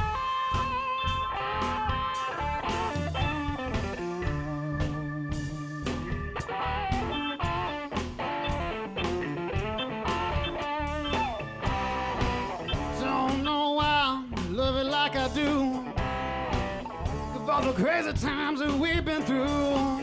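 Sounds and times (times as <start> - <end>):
lead melody with pitch bends: 0.0 - 13.7
drum kit beat: 0.0 - 20.0
electric bass: 0.0 - 20.0.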